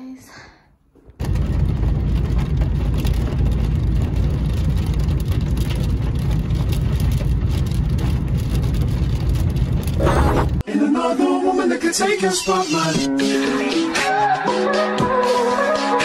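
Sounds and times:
car road and engine rumble: 0:01.2 - 0:10.6
rain hissing on car: 0:01.7 - 0:10.6.

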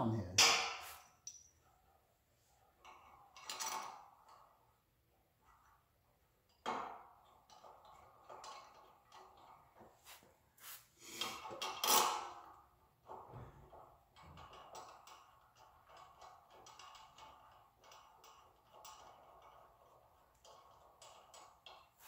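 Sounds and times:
metal clinks and knocks: 0:00.4 - 0:02.0, 0:02.6 - 0:04.8, 0:05.4 - 0:09.9, 0:11.2 - 0:22.0.

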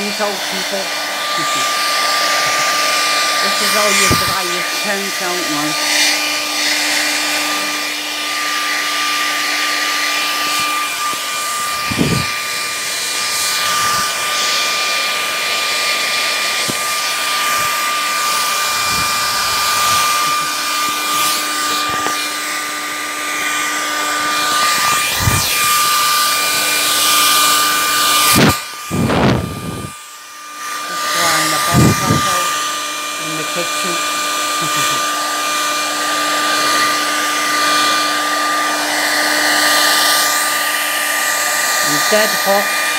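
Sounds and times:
hair dryer blowing with high whine: 0:00.0 - 0:42.9.

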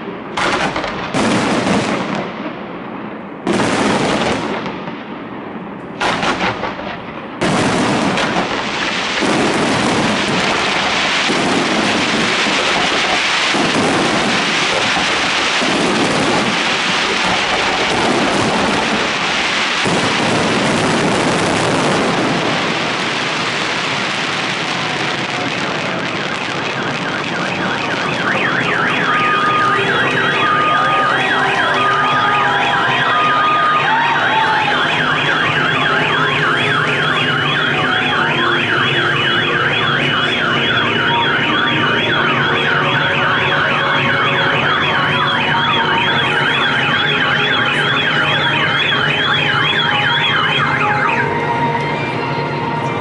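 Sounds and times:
fireworks crackling: 0:00.0 - 0:51.5
car alarms warbling: 0:26.2 - 0:52.8.

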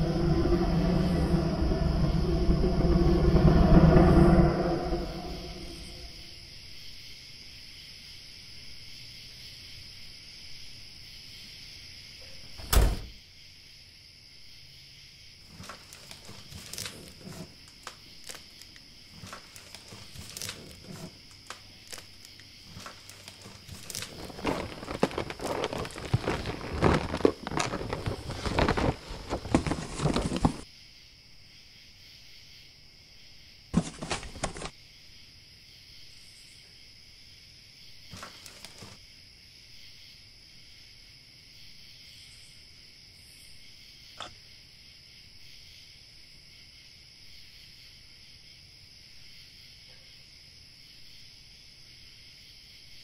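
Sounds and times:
paper box rustling and crinkling: 0:15.5 - 0:30.6, 0:33.8 - 0:34.7, 0:38.2 - 0:39.0.

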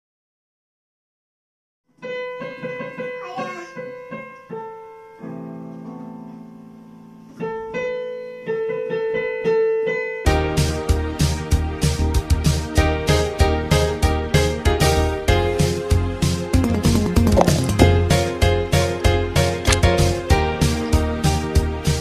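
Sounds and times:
loud full music: 0:10.4 - 0:22.0
electronic keyboard piano notes: 0:12.9 - 0:21.2.

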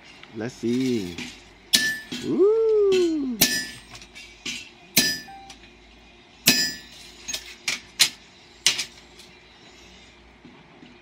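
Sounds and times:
heavy hammer blows on anvil: 0:01.3 - 0:05.6, 0:06.4 - 0:08.9.

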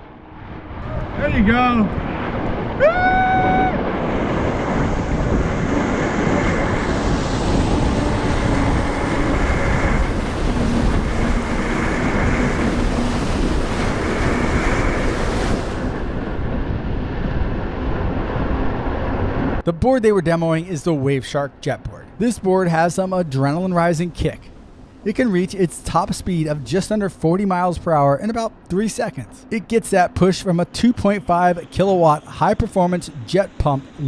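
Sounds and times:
surf washing: 0:00.0 - 0:19.6
wind buffeting microphone: 0:00.0 - 0:19.6
short rising whoop: 0:02.0 - 0:04.2.

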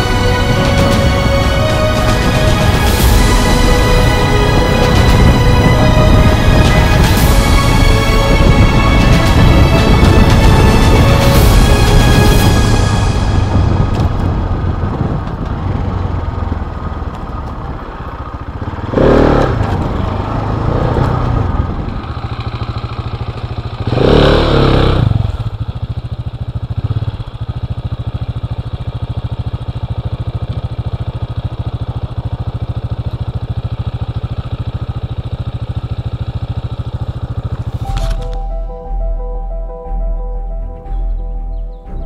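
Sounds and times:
motorcycle engine idling: 0:13.3 - 0:42.0
motorcycle engine revving: 0:13.6 - 0:38.4.

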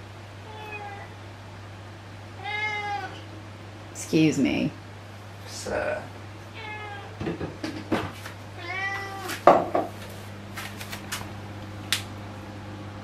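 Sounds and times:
cat meowing: 0:00.4 - 0:01.2, 0:02.4 - 0:03.2, 0:06.5 - 0:07.2, 0:08.6 - 0:09.4.

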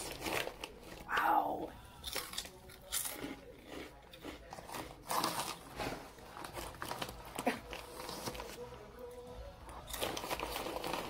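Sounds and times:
chip bag crinkling: 0:00.0 - 0:01.1, 0:02.0 - 0:08.7, 0:09.8 - 0:11.0
crunching and chewing chips: 0:00.0 - 0:11.0.

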